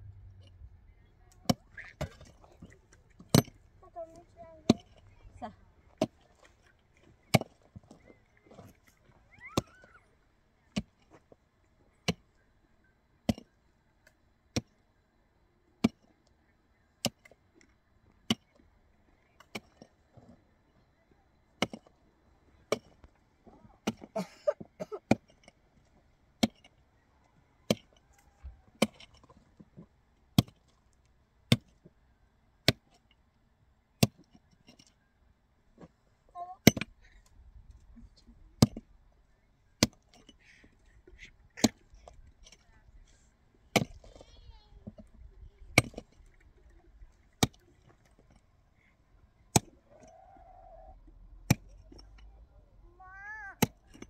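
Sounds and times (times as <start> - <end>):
hand pick striking stony soil: 1.4 - 3.6, 4.6 - 5.3, 7.1 - 8.7, 10.7 - 11.0, 13.3 - 13.5, 15.8 - 16.0, 17.0 - 17.4, 18.3 - 18.6, 19.4 - 19.9, 21.6 - 21.9, 22.7 - 23.1, 23.8 - 24.2, 25.1 - 25.6, 26.4 - 26.8, 27.7 - 28.0, 28.6 - 30.8, 31.5 - 31.9, 32.6 - 33.1, 34.0 - 34.9, 36.6 - 37.2, 38.6 - 38.9, 39.8 - 40.8, 41.6 - 42.8, 43.7 - 46.1, 47.4 - 48.4, 49.5 - 50.1, 51.5 - 52.3, 53.6 - 54.0.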